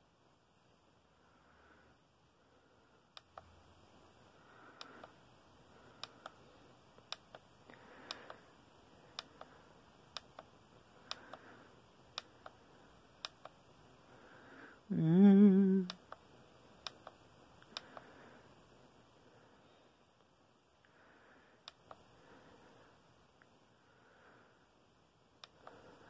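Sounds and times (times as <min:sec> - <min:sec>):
voice-like hum with wavering pitch: 0:14.9 - 0:16.0.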